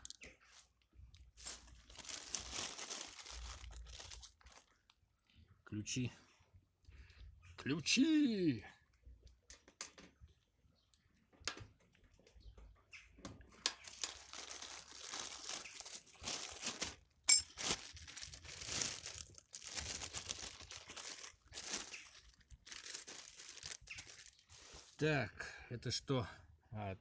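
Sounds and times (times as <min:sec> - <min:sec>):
plastic bag crinkling: 0:01.1 - 0:05.0, 0:13.5 - 0:25.0.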